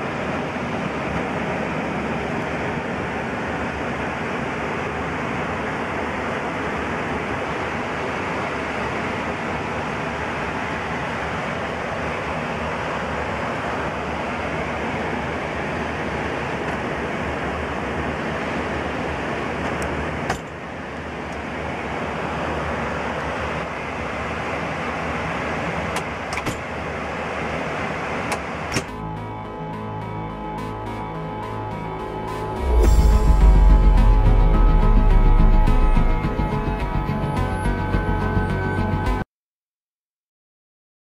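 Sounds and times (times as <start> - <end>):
rushing air and engines: 0.0 - 39.2
music: 28.9 - 39.2.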